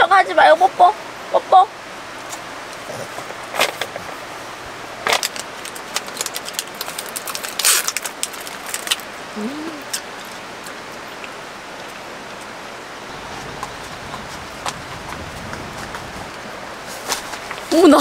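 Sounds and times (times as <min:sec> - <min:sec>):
plastic wrapper crinkling: 0:05.1 - 0:09.1
mountain stream rushing: 0:10.4 - 0:18.0.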